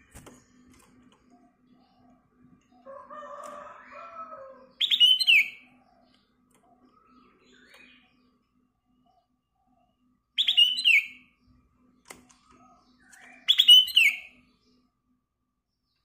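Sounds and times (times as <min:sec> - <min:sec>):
bird calling: 0:01.3 - 0:08.2, 0:10.4 - 0:11.2, 0:12.6 - 0:14.4.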